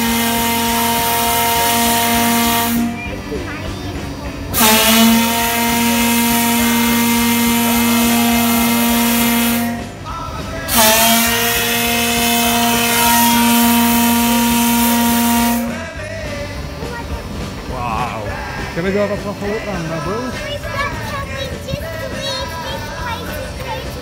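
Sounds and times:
steam whistle blasts: 0:00.0 - 0:03.0, 0:04.5 - 0:10.1, 0:10.7 - 0:15.9.

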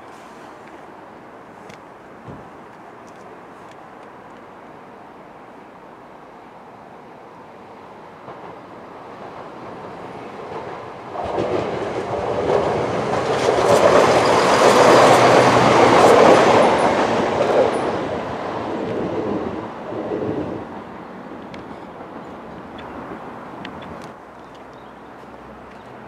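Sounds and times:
diesel train engine passing: 0:04.6 - 0:24.0.

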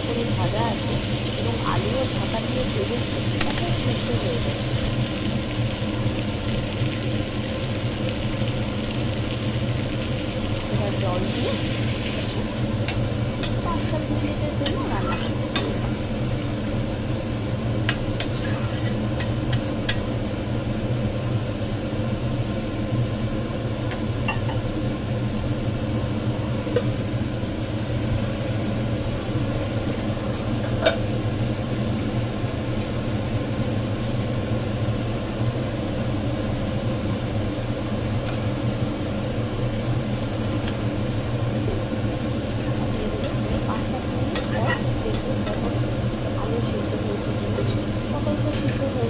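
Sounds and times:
low kitchen hum: 0:00.0 - 0:49.0
metal spatula scraping a pan: 0:14.6 - 0:15.4, 0:18.2 - 0:20.1, 0:44.3 - 0:44.9.

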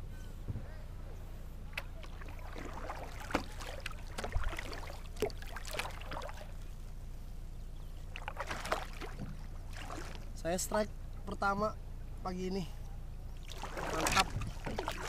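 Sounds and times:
paddle splashes in water: 0:01.7 - 0:06.8, 0:08.0 - 0:10.4, 0:13.4 - 0:15.0.

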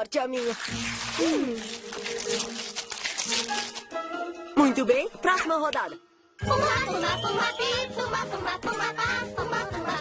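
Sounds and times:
gift-wrap paper crinkling and tearing: 0:00.1 - 0:04.0
background music with held notes: 0:01.3 - 0:05.2, 0:05.9 - 0:10.0.

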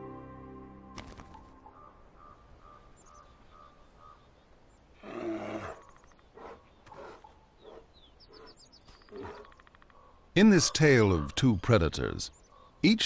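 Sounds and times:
faint bird chirps: 0:01.3 - 0:13.0
wild animal harsh call: 0:05.0 - 0:10.2.

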